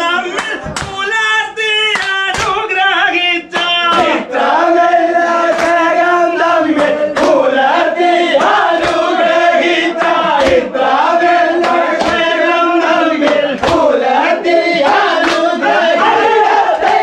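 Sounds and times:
men singing a boat song: 0.0s - 17.0s
sharp hand claps: 0.2s - 1.2s, 1.8s - 2.9s, 3.5s - 4.2s, 5.2s - 7.5s, 8.3s - 14.0s, 14.8s - 15.8s, 16.8s - 17.0s.

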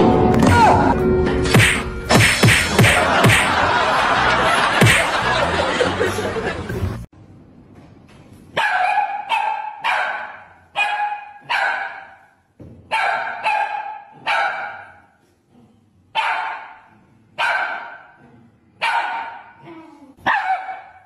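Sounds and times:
small dog barking: 8.6s - 12.3s, 12.9s - 15.0s, 16.2s - 18.2s, 18.8s - 19.6s, 20.2s - 21.0s.

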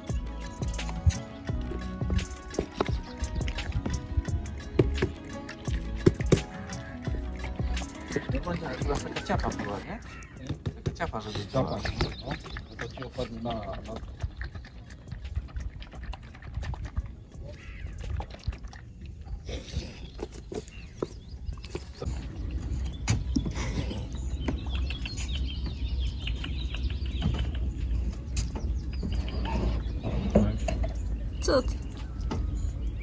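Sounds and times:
bird calls: 0.0s - 15.2s, 17.1s - 18.5s, 19.3s - 33.0s
wind rumbling on microphone: 14.0s - 33.0s.

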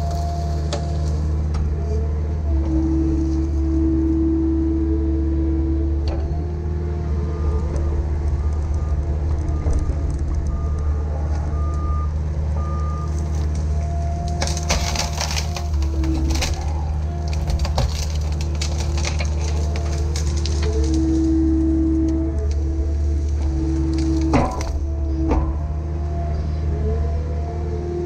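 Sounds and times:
wood cracking and splintering: 0.0s - 1.8s, 7.6s - 11.9s, 12.5s - 25.7s
excavator diesel engine running: 0.0s - 28.0s.

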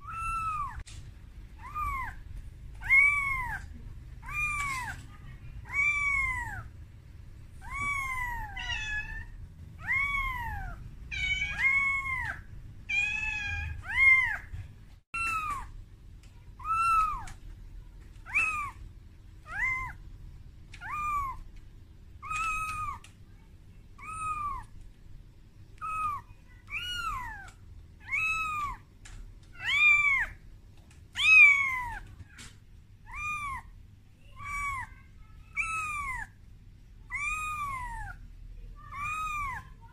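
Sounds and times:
kitten mewing: 0.0s - 0.8s, 1.6s - 2.2s, 2.8s - 6.7s, 7.6s - 14.5s, 16.6s - 17.4s, 18.2s - 18.8s, 19.4s - 20.0s, 20.7s - 21.5s, 22.2s - 23.1s, 24.0s - 24.7s, 25.8s - 28.8s, 29.6s - 30.4s, 31.1s - 32.2s, 33.0s - 33.7s, 34.4s - 36.4s, 37.1s - 38.2s, 38.9s - 39.8s.

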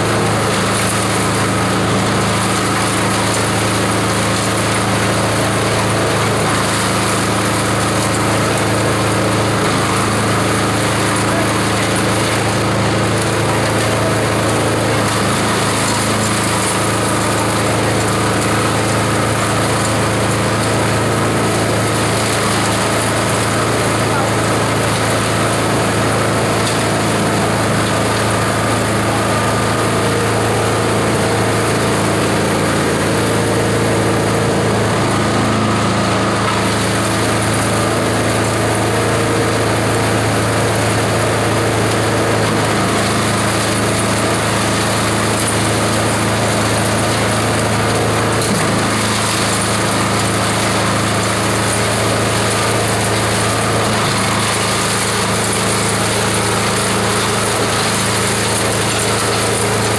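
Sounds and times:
shredder machine droning: 0.0s - 59.9s.

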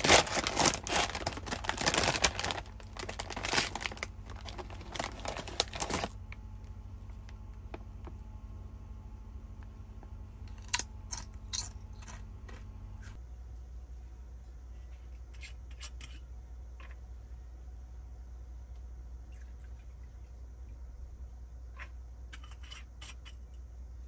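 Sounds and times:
potato chips crunching: 0.0s - 6.2s, 10.4s - 12.2s
steady low hum: 0.0s - 24.0s.

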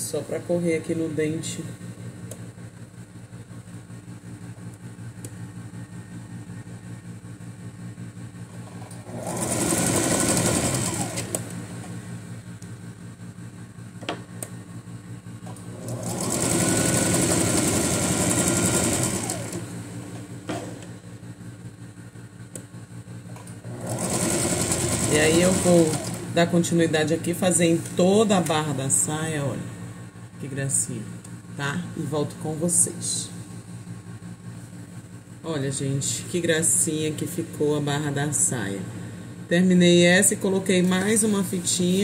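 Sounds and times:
sewing machine stitching: 8.7s - 11.9s, 15.5s - 20.9s, 23.6s - 26.4s.

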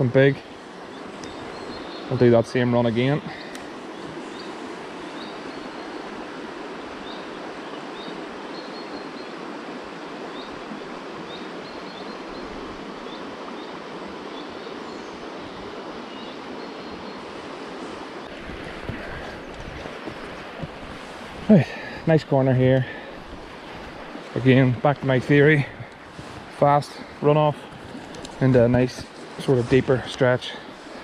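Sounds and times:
river water running over riffle: 0.0s - 31.0s
bird chirping: 0.4s - 6.0s.

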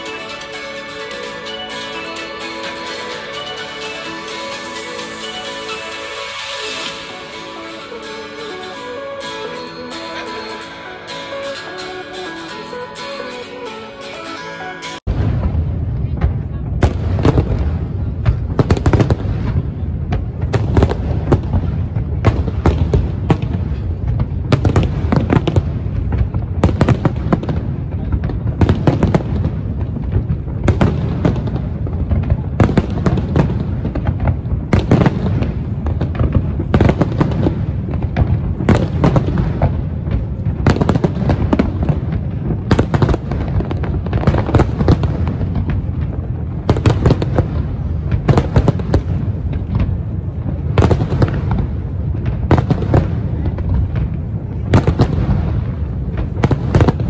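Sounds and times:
firework bangs: 15.1s - 57.0s.

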